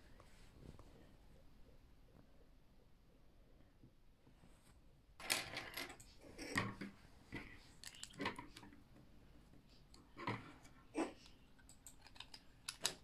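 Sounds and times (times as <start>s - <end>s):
plastic parts clicking and clacking: 5.2s - 8.8s, 9.9s - 13.0s.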